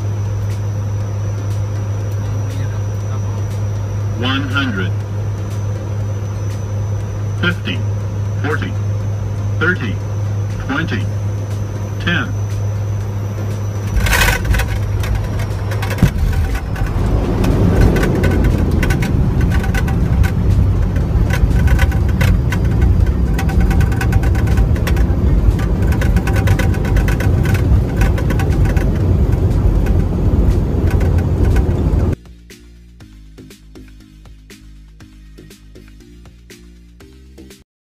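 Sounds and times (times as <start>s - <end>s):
turboprop engine drone: 0.0s - 37.6s
rattles and knocks: 13.8s - 32.2s
touchdown knock: 13.9s - 32.2s.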